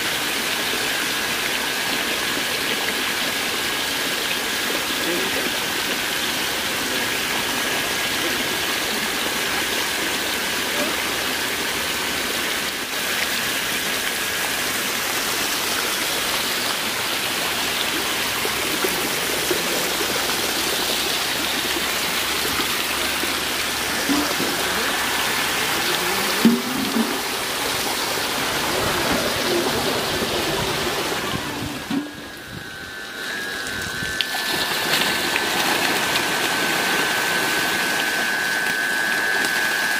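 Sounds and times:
water gushing and splashing: 0.0 - 39.9
faint thin whine: 14.2 - 39.9.

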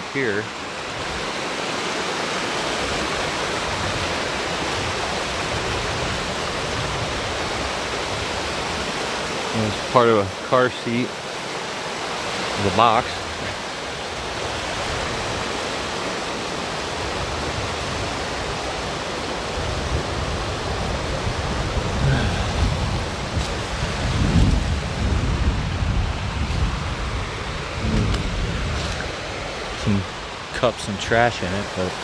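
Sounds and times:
running water rushing: 0.0 - 32.0
low rumbles and bumps: 21.4 - 30.1.

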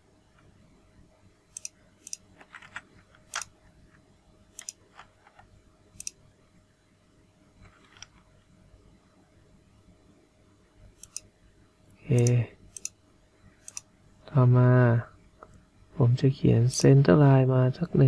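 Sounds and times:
faint steady hum: 0.0 - 18.0
computer mouse clicking: 1.5 - 3.6, 4.5 - 6.2, 7.6 - 8.2, 11.0 - 11.3, 12.1 - 13.0, 13.6 - 13.9.

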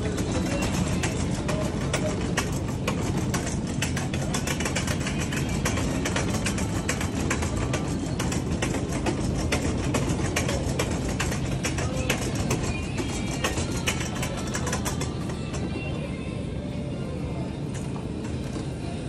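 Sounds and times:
shopping cart rolling on tiles: 0.0 - 15.9.

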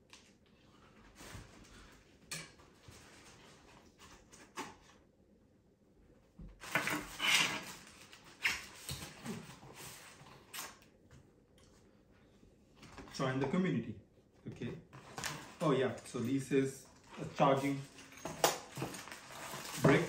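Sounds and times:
cardboard and paper rustling: 14.6 - 20.0.

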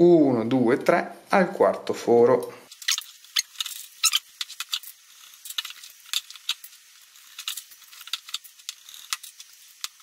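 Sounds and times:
bicycle spokes clicking: 2.7 - 10.0.

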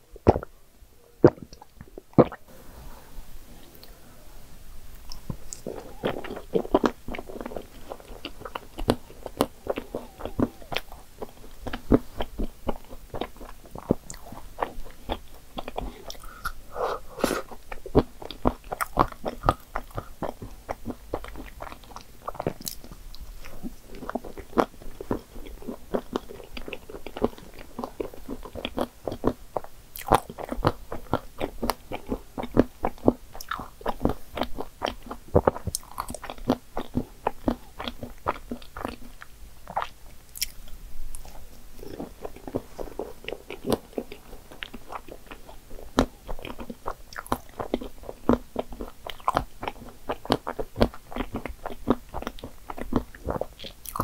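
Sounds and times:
wet mouth sounds: 0.2 - 0.5, 1.2 - 2.5, 5.0 - 54.0
chewing and biting: 5.1 - 16.6, 17.2 - 54.0.

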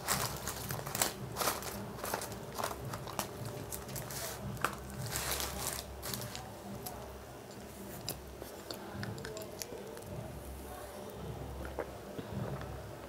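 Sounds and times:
paper wrapper crinkling: 0.0 - 7.1
chewing: 7.5 - 10.2.

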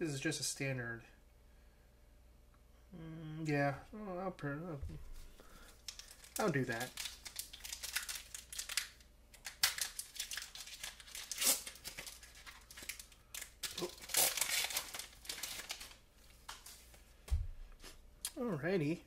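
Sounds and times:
foil wrapper tearing and crinkling: 5.6 - 16.0.

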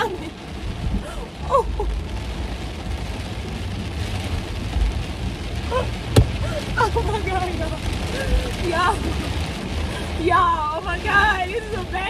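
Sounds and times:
heavy rain on a car roof: 0.0 - 12.0
car driving rumble: 0.2 - 12.0
woman laughing: 6.4 - 8.3.

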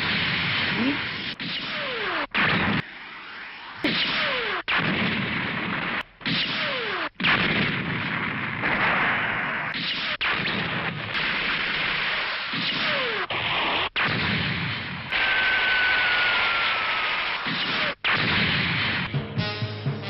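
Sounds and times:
beam-gun shots: 0.0 - 19.2
explosions: 0.0 - 19.2
high whine falling in pitch: 0.8 - 6.0, 15.1 - 18.0.

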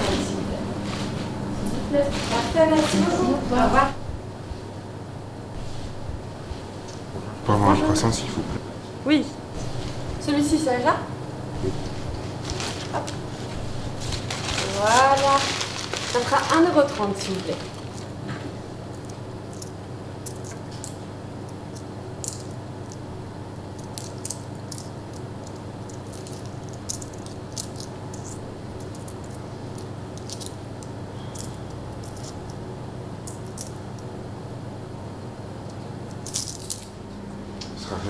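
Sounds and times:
steady low hum: 0.0 - 38.0
coins clinking: 21.8 - 23.0, 23.8 - 32.6, 36.1 - 37.0.

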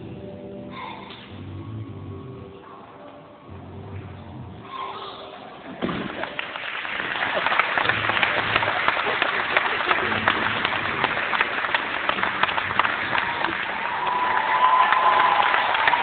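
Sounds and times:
audience applauding: 6.1 - 16.0.

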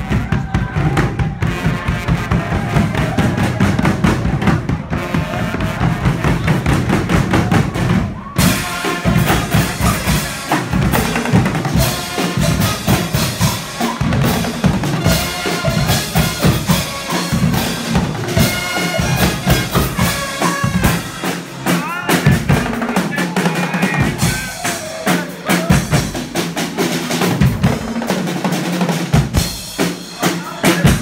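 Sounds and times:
brass band playing: 0.0 - 31.0
drum-kit beat: 0.0 - 31.0.

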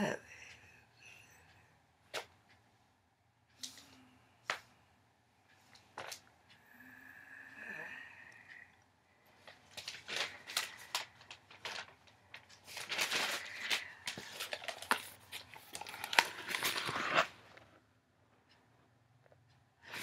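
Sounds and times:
magazine pages rustling and turning: 9.4 - 17.7.

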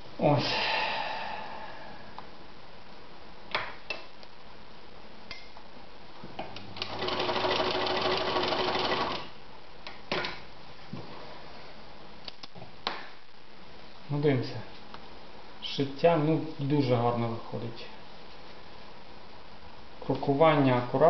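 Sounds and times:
sewing machine running: 6.8 - 9.3.

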